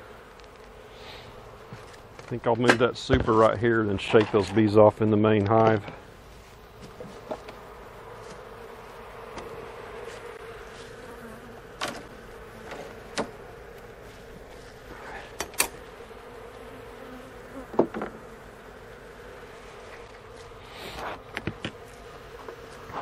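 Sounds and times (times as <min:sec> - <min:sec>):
honeybees buzzing: 0:00.0 - 0:23.0
knocks and clicks of hive boxes: 0:06.7 - 0:07.6, 0:09.3 - 0:10.3, 0:11.7 - 0:13.9, 0:17.6 - 0:18.2, 0:21.2 - 0:22.9.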